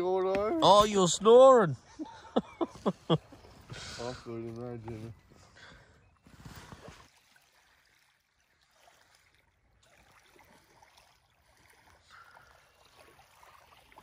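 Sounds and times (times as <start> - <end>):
ripples lapping on shore: 6.2 - 14.0.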